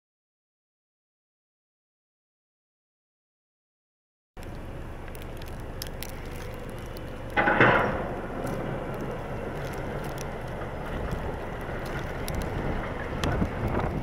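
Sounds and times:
engines and tyres in slush: 4.4 - 14.0.

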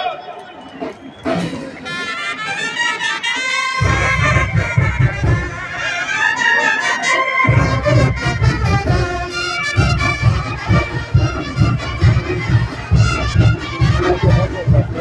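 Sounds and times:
brass band playing: 0.8 - 15.0
pounding bass beat: 3.8 - 5.8, 7.5 - 15.0.

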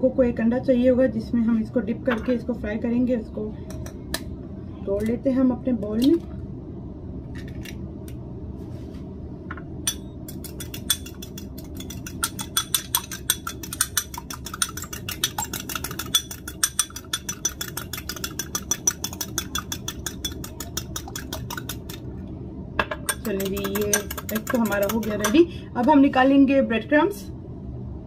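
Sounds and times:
steady low hum: 0.0 - 28.0
fork clinking against glass bowl: 9.9 - 21.8
egg cracking taps: 10.3 - 22.1, 22.8 - 26.0.

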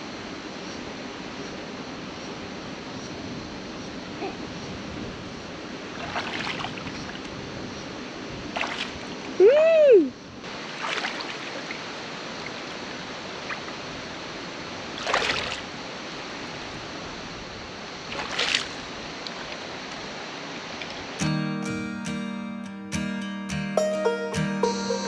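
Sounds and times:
creek water rushing: 5.6 - 9.4, 10.4 - 21.2
splashing or scuffing: 6.0 - 7.2, 8.5 - 9.2, 10.6 - 11.9, 15.0 - 15.7, 18.1 - 19.6.

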